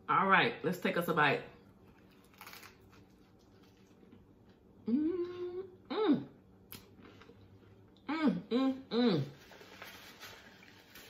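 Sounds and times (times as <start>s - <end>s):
woman humming while eating: 4.8s - 6.5s, 8.0s - 9.4s.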